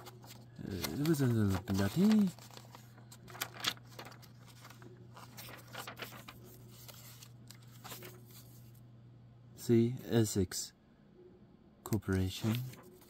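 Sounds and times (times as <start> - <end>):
pages turning: 0.0 - 8.8, 12.1 - 13.0.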